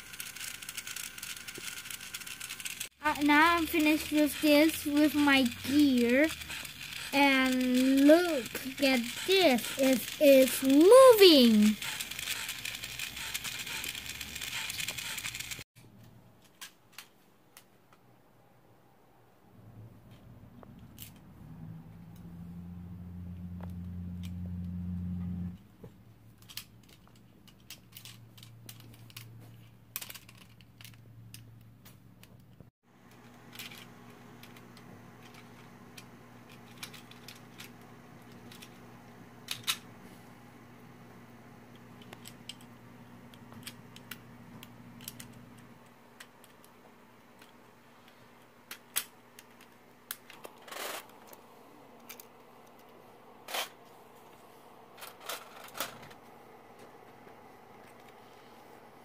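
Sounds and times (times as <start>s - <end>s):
plastic parts clicking: 26.4s - 32.6s, 36.5s - 37.7s, 45.0s - 45.4s.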